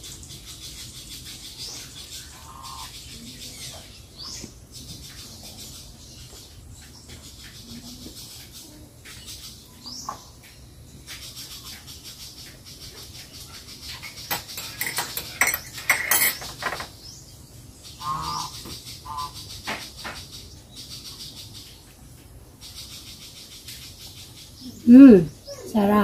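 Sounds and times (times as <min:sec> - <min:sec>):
spoon clinking in a ceramic mug: 0:14.3 - 0:16.8.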